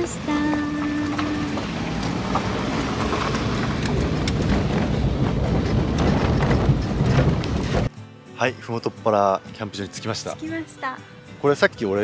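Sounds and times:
gravel crackling under tyres: 0:00.0 - 0:07.9
van engine and tyre noise: 0:00.0 - 0:07.9.

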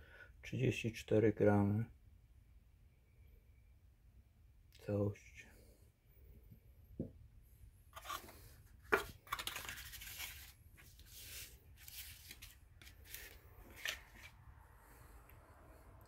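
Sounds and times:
cardboard crackling and rustling: 0:08.0 - 0:14.3.

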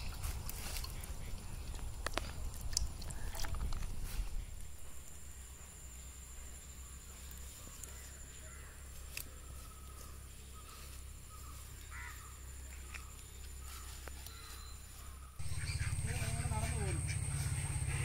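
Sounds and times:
distant bird calls: 0:04.2 - 0:18.0
high-pitched insect drone: 0:13.6 - 0:18.0
low rumble: 0:15.4 - 0:18.0.

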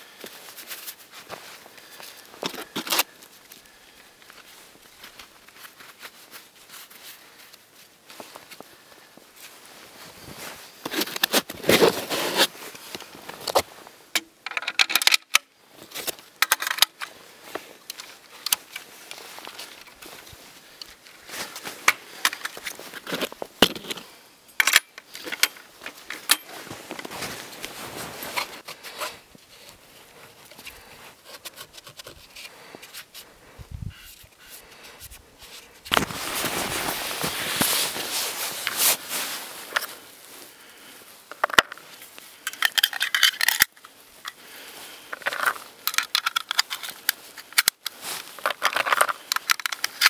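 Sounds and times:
rifle parts clicking and rattling: 0:14.2 - 0:17.2, 0:17.8 - 0:21.2, 0:21.8 - 0:33.3, 0:41.3 - 0:41.8, 0:42.4 - 0:44.4, 0:45.1 - 0:50.0.

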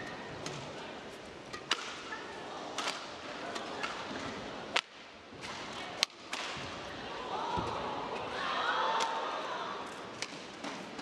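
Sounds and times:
background murmur: 0:00.0 - 0:11.0
rackets striking shuttlecock: 0:01.5 - 0:02.0.

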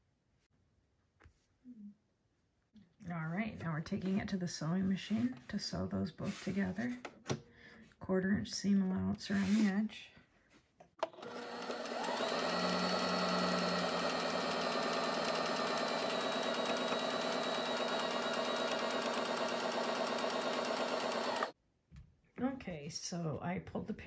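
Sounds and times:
sewing machine stitching: 0:11.0 - 0:21.6.

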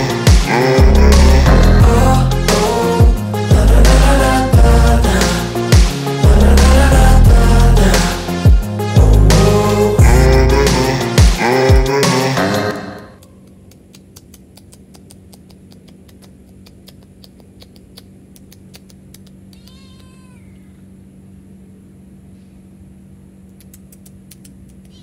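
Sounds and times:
steady low hum: 0:00.0 - 0:25.0
cat meowing: 0:19.5 - 0:20.8.

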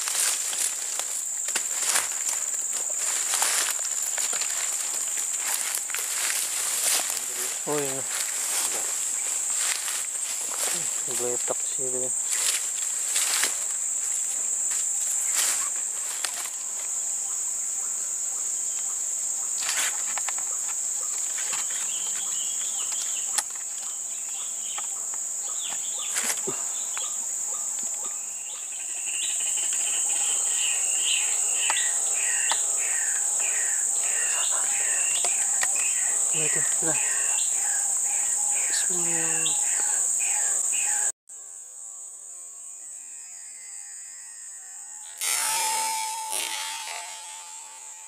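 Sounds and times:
insects droning: 0:00.0 - 0:48.0.

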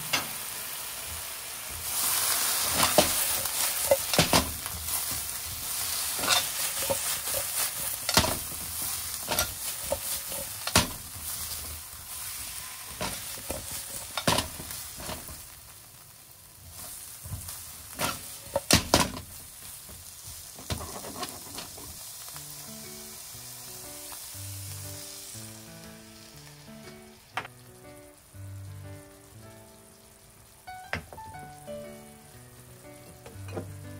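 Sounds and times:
food sizzling in oil: 0:00.0 - 0:33.9
plastic turner scraping a wok: 0:20.6 - 0:22.0
soft background music: 0:22.0 - 0:33.9.

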